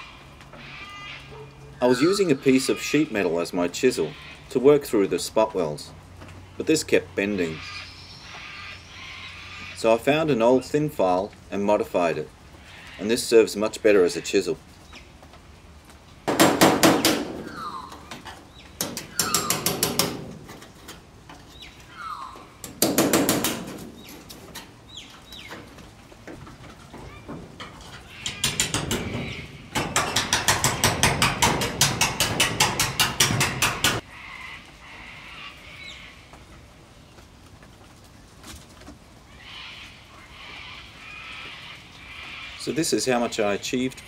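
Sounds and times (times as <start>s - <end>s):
hammer striking chisel on metal: 18.8s - 20.2s, 29.8s - 34.0s.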